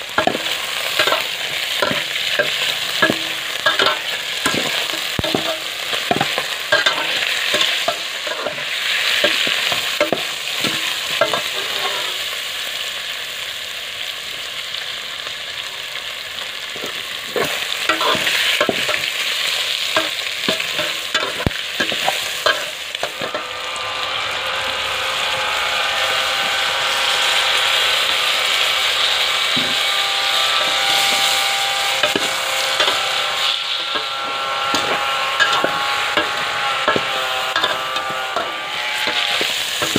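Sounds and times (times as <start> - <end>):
food sizzling in a pot: 0.0 - 39.9
metal spoon scraping a pot: 0.1 - 12.3, 16.8 - 19.2, 19.8 - 23.6, 28.9 - 39.9.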